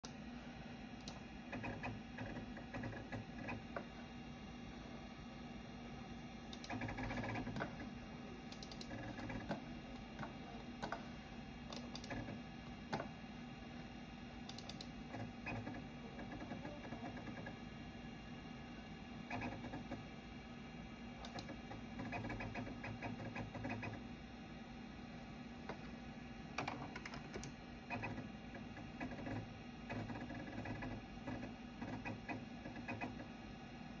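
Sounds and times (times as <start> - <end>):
steady low hum: 0.0 - 34.0
hard drive clicking: 6.5 - 11.1, 11.7 - 13.2.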